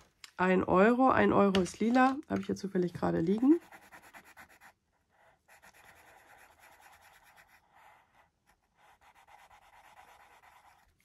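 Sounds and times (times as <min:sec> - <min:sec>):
pen scratching on paper: 0:03.3 - 0:11.0.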